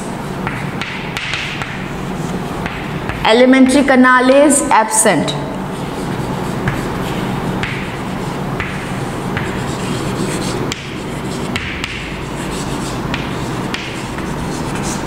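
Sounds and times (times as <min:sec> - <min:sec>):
chalk scratching on chalkboard: 0:05.7 - 0:15.0.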